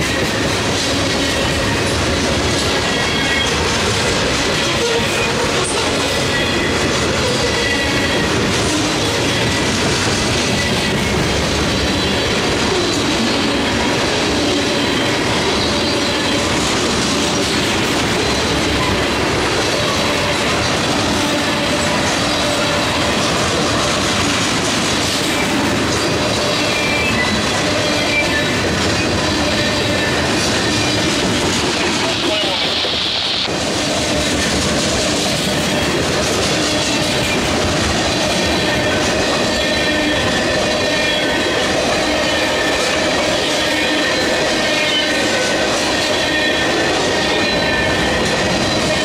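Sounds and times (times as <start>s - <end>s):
train wheels rumbling on rails: 0.0s - 49.0s
wheels squealing: 25.3s - 31.2s.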